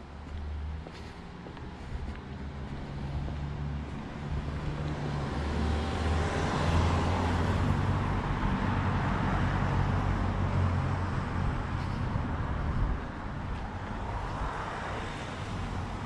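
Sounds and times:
vehicle engine hum: 0:00.0 - 0:16.0.

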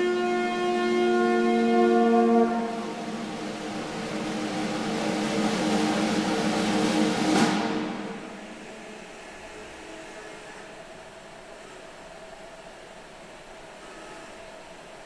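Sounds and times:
orchestra playing: 0:01.4 - 0:08.5.

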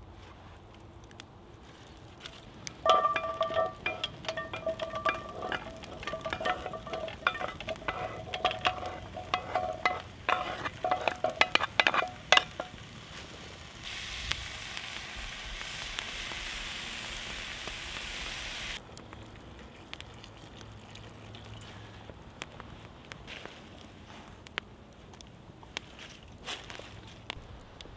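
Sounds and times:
metal tongs tapping a pot: 0:02.8 - 0:12.8
vegetables dropping into a pot: 0:02.8 - 0:12.8
food sizzling in a pot: 0:02.9 - 0:18.8.

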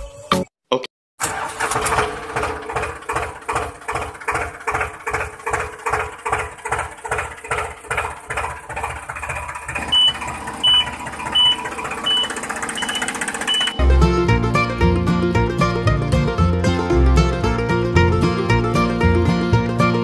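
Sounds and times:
tractor engine chugging: 0:01.2 - 0:16.0
short high beeps: 0:09.9 - 0:13.8.

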